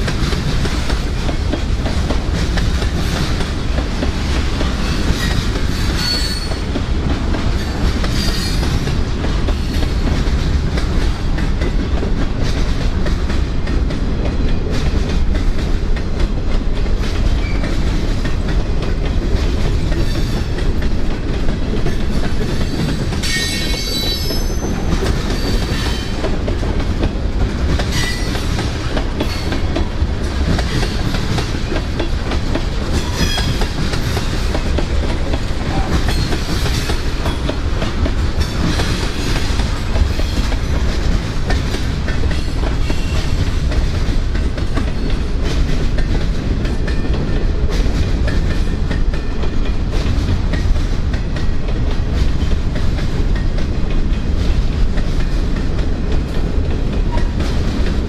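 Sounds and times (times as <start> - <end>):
freight train rumbling past: 0.0 - 58.0
wheels clacking over rail joints: 0.0 - 58.0.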